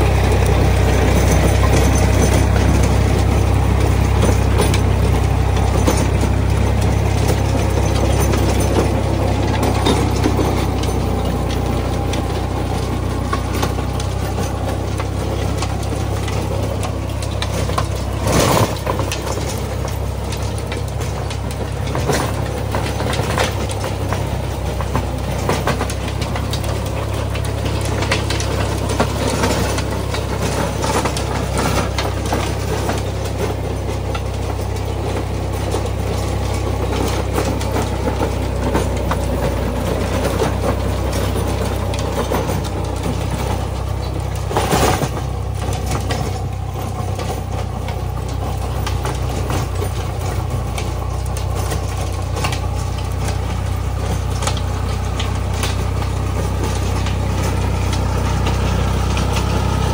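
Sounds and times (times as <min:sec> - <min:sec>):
rotary tiller knocks and clatter: 0:00.0 - 0:59.9
tractor diesel engine running: 0:00.0 - 0:59.9.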